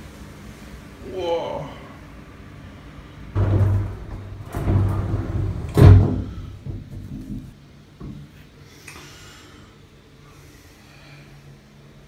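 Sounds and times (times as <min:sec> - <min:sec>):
knocks and bumps: 0:03.4 - 0:08.2.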